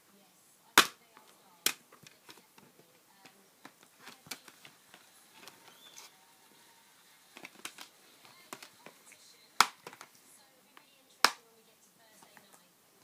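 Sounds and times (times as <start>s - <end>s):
plastic case clicks and taps: 9.6s - 10.1s, 11.2s - 11.4s.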